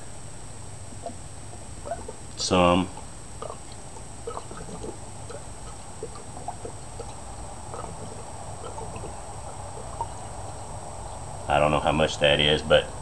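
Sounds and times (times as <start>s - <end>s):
liquid pouring and gurgling: 2.9s - 10.8s.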